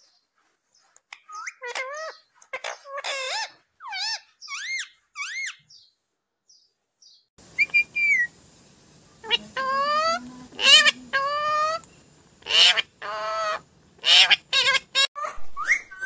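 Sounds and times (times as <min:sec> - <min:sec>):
parakeet calling: 0:01.1 - 0:05.9, 0:07.4 - 0:08.4, 0:09.1 - 0:16.0.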